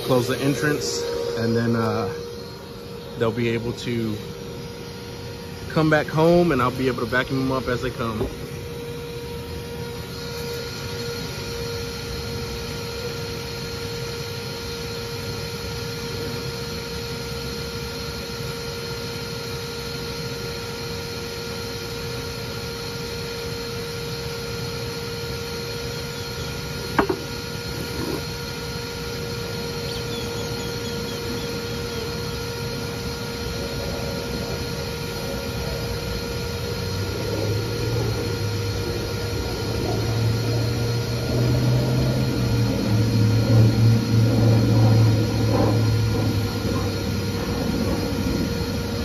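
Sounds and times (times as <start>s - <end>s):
vacuum motor humming: 0.0s - 49.0s
sharp knocks: 26.9s - 27.3s.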